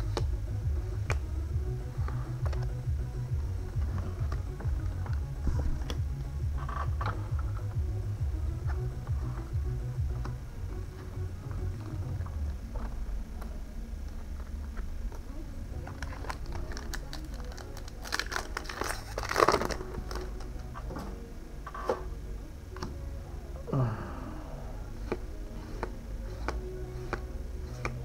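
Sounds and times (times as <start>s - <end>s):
foil wrappers crinkling: 15.8s - 20.6s.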